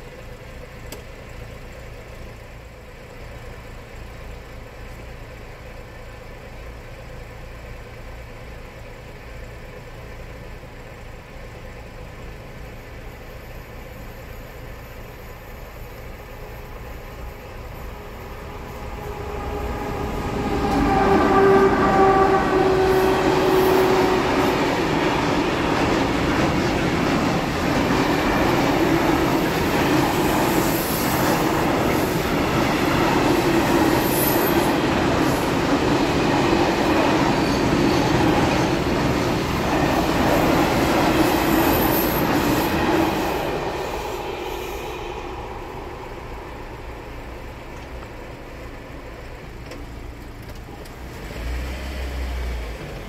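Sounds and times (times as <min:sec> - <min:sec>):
low car engine rumble: 0:00.0 - 0:29.7, 0:43.5 - 0:51.3
freight train wheels rumbling on rails: 0:00.0 - 0:53.0
high wheel squeals: 0:12.8 - 0:48.0.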